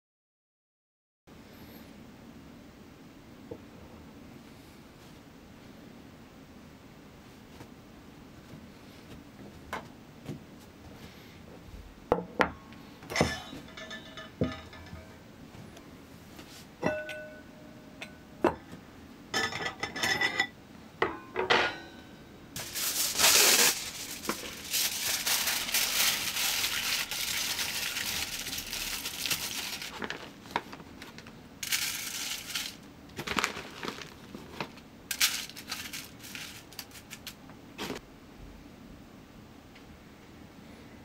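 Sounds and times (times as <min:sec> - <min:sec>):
metal pot and lid clinking: 0:13.1 - 0:15.2, 0:16.8 - 0:18.2
aluminium foil crumpling: 0:22.6 - 0:37.4
wood chips rustling on foil: 0:22.6 - 0:38.0.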